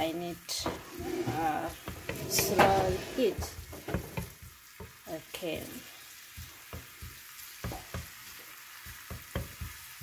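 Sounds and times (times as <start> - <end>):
garlic sizzling in oil: 0.0 - 10.0
wooden spatula scraping pan: 0.6 - 4.5.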